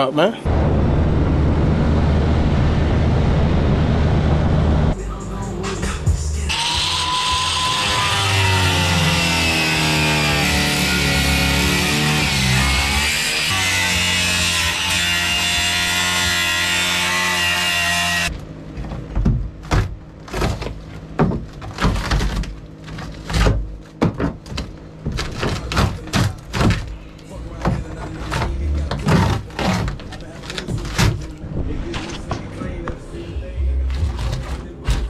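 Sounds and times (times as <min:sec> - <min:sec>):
knocks and thuds of wood breaking: 0:18.8 - 0:31.4.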